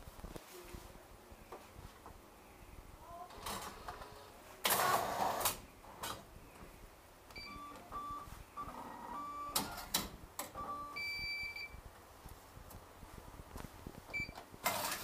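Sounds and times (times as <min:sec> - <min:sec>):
vending machine beeps: 0:07.3 - 0:09.9, 0:10.6 - 0:11.8, 0:14.1 - 0:14.9.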